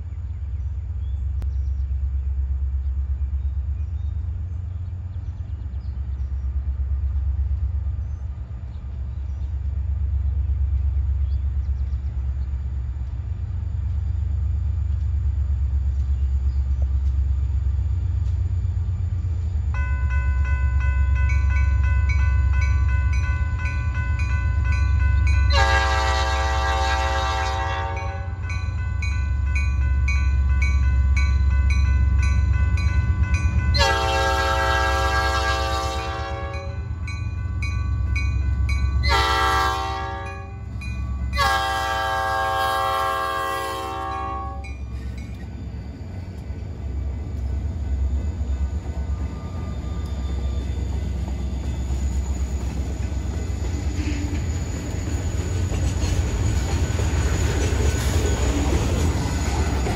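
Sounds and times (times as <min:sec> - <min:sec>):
diesel train rumble: 0:00.0 - 0:59.9
crossing bell ringing: 0:19.8 - 0:26.5, 0:27.7 - 0:42.3, 0:44.0 - 0:45.5
train horn blast: 0:25.4 - 0:28.5, 0:33.7 - 0:36.9, 0:39.0 - 0:40.6, 0:41.3 - 0:44.8.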